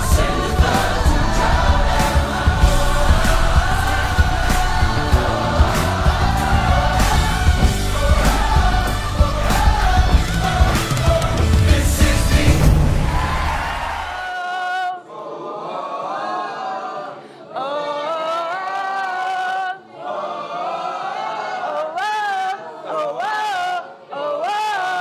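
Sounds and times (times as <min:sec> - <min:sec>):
music with heavy beat: 0:00.0 - 0:14.2
voices singing unaccompanied: 0:00.0 - 0:25.0.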